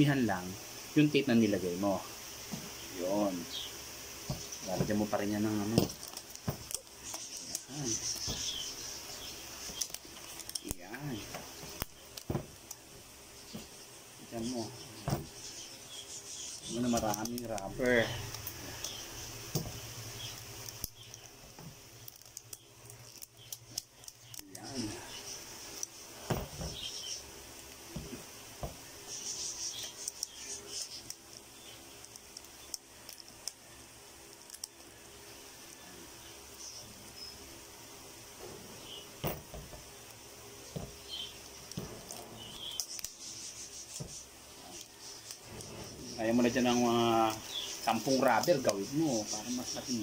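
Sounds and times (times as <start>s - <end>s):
scratchy rubbing of rubber bands: 4.3s - 12.3s, 41.2s - 50.0s
faint bird chirps: 6.7s - 12.2s, 14.3s - 21.4s, 22.5s - 27.3s, 28.9s - 32.8s.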